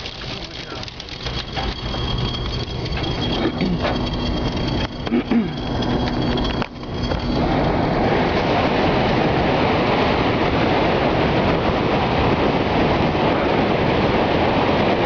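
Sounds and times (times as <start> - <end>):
rain beating on a car: 0.0 - 1.4
thin high tone: 0.0 - 9.7.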